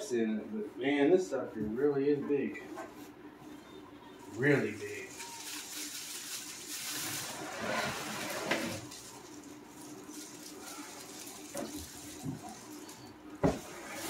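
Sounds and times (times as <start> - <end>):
plastic bag rustling and crinkling: 4.2 - 14.0.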